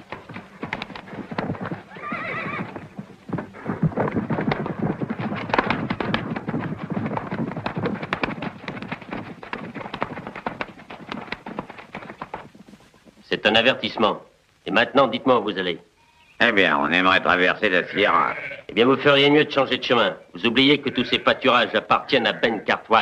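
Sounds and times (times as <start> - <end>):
horses galloping hoofbeats: 0.0 - 14.3, 17.4 - 23.0
horse whinnying: 1.8 - 3.8, 17.9 - 18.7.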